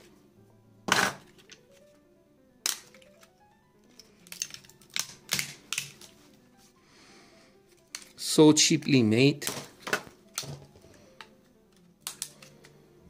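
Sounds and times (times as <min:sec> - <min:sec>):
soft background music: 0:00.0 - 0:13.0
plastic snaps and clicks: 0:02.6 - 0:06.1, 0:09.4 - 0:12.8.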